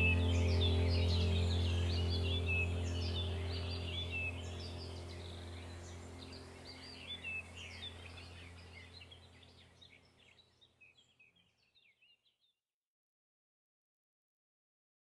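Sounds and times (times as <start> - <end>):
low steady hum: 0.0 - 11.1
birds chirping: 0.0 - 12.3.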